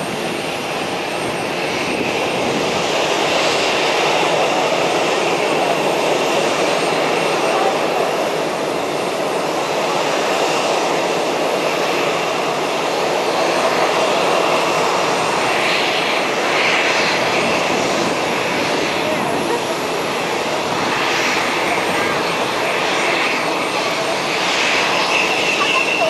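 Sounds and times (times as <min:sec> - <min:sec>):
turboprop engines running: 0:00.0 - 0:26.0.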